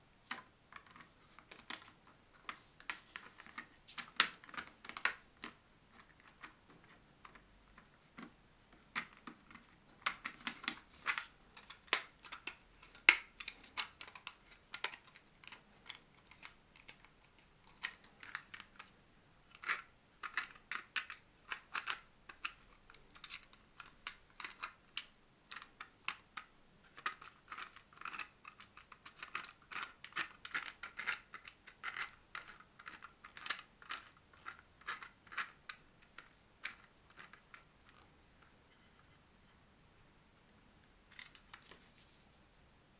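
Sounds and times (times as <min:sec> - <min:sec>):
small plastic gear clicks: 0:19.5 - 0:38.5.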